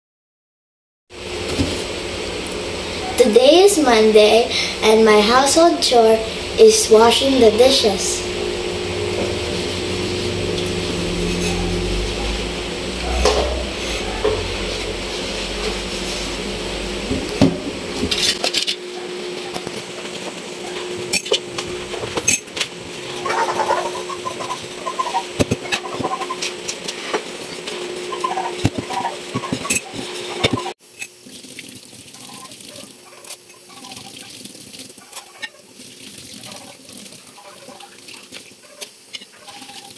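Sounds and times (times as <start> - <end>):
dishes washed in sink: 3.0 - 39.9.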